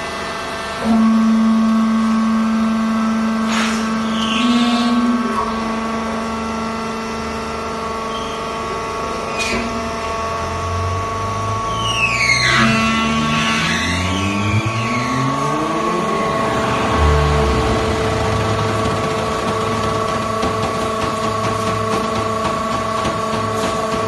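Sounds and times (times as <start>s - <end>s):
high falling squeals: 11.6s - 18.8s
electric motor hum: 12.6s - 24.0s.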